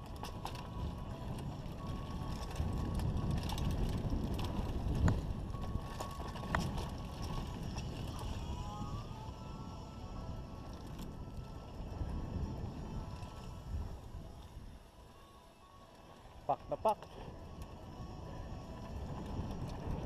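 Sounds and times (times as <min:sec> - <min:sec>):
bike rattling and knocking: 0:00.0 - 0:08.5
wind on microphone: 0:00.0 - 0:15.4, 0:17.2 - 0:20.0.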